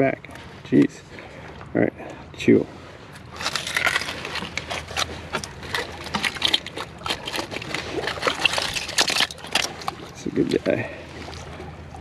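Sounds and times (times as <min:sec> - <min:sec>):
oyster shells clattering in mud: 0:03.2 - 0:10.6.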